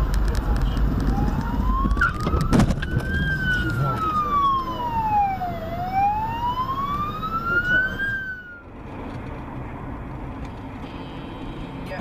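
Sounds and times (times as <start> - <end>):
traffic noise: 0.0 - 12.0
ambulance siren wailing: 1.0 - 8.7.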